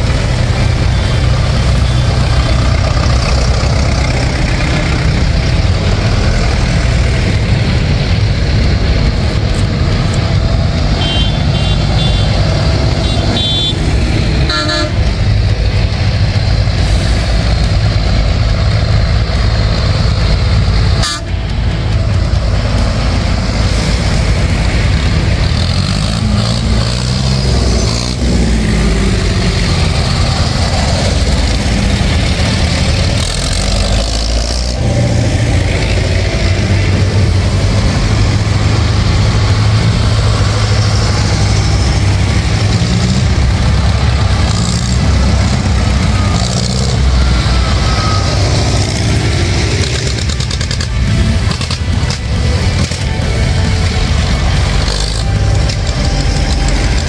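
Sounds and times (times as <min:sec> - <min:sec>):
tractor engines droning: 0:00.0 - 0:57.0.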